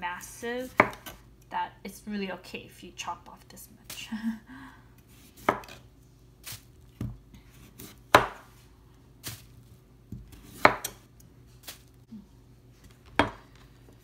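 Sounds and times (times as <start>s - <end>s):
knife slicing radish skin: 0.6s - 1.2s, 10.3s - 11.0s.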